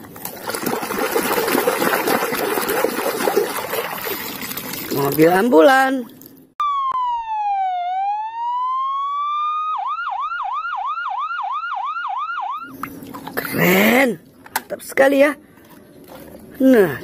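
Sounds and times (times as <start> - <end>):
electronic ambulance siren: 6.6 - 12.7.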